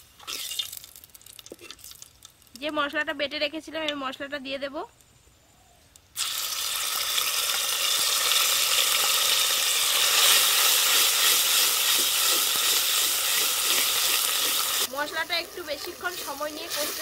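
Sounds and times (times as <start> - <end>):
paste sizzling in hot oil: 6.2 - 17.0.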